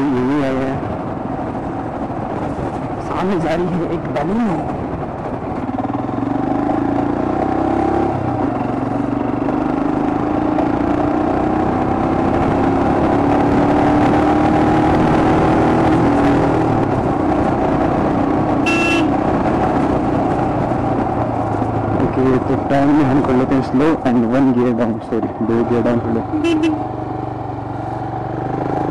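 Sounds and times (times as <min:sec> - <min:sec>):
motorcycle engine running: 0:00.0 - 0:28.9
horn toot: 0:18.6 - 0:19.2, 0:26.3 - 0:26.8.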